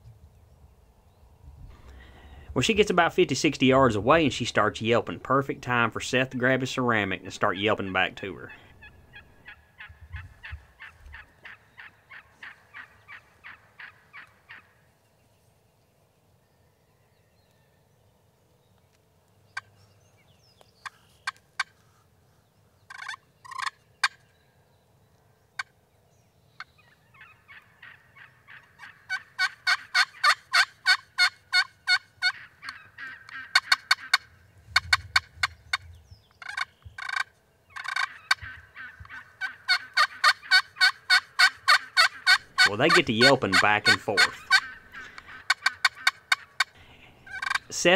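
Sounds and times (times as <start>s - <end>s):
turkey call yelping: 7.4s - 14.8s, 22.9s - 24.2s, 26.7s - 47.8s
turkey hen yelping: 8.5s - 14.8s, 26.7s - 47.7s.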